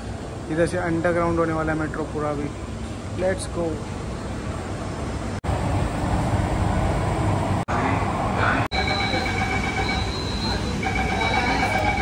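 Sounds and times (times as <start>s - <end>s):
metro train rumble: 0.0s - 12.0s
high-pitched whine: 7.7s - 12.0s.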